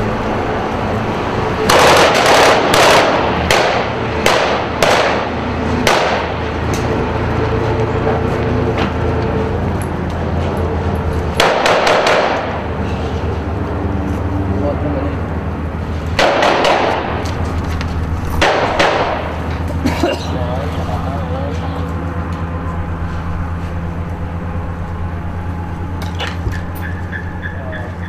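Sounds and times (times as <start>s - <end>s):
rifle gunfire: 1.7s - 6.3s, 11.4s - 12.6s, 16.2s - 17.1s, 18.4s - 19.3s.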